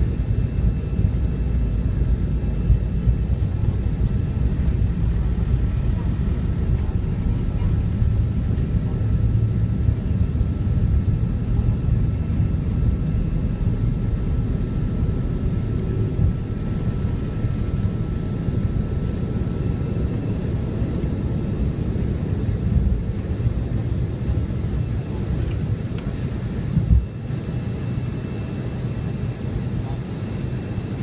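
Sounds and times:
jet engine roar in cabin: 0.0s - 31.0s
thin steady jet engine whines: 0.0s - 31.0s.

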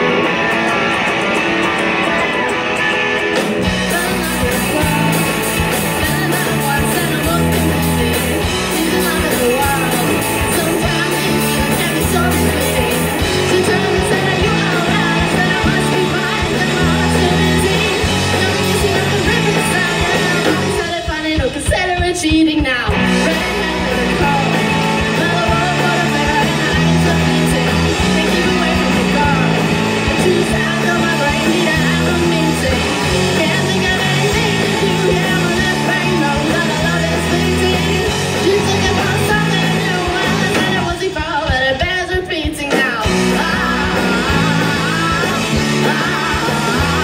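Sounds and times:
bass guitar: 0.0s - 47.0s
drums: 0.0s - 47.0s
electric guitar: 0.0s - 47.0s
woman singing lead vocals: 3.7s - 47.0s.

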